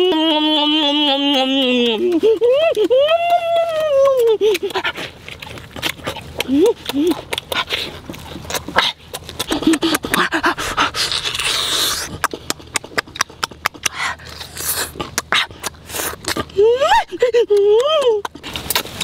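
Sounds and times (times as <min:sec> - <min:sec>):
person humming: 0:00.0 - 0:04.7
person chewing: 0:01.0 - 0:19.0
wet lip smacks and mouth clicks: 0:01.5 - 0:19.0
sucking slurp: 0:04.6 - 0:16.6.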